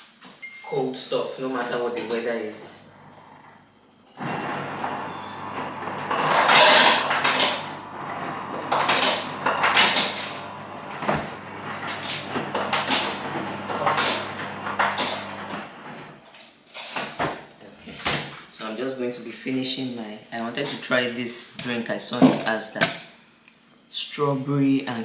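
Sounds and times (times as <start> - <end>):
fridge low hum: 1.6 - 16.1.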